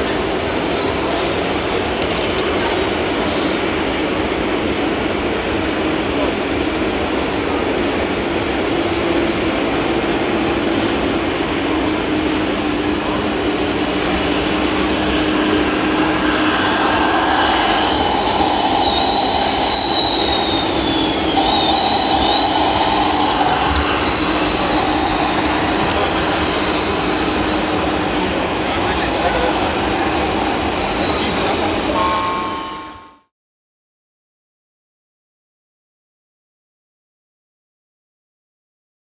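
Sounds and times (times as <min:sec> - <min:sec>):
busy hall din: 0:00.0 - 0:33.3
steady hum: 0:12.5 - 0:32.0
hydraulic pump whining: 0:15.9 - 0:28.6.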